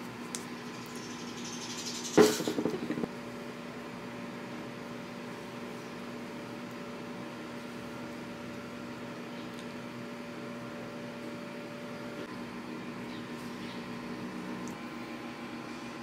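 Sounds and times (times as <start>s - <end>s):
low electrical hum: 0.0s - 16.0s
knocking and rustling: 2.2s - 3.1s.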